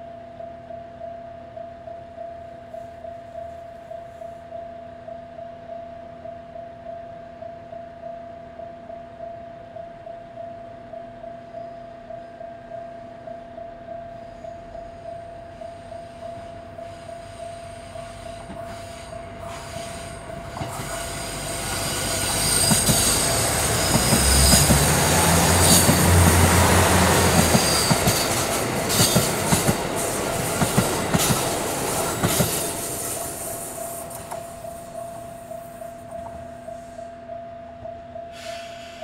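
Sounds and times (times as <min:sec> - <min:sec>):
idling diesel railcar hum: 0:13.8 - 0:37.4
train wheels squealing: 0:14.0 - 0:37.5, 0:38.1 - 0:39.0
diesel train engines rumbling: 0:14.6 - 0:37.3
wheel clacks over rail joints: 0:21.6 - 0:34.6.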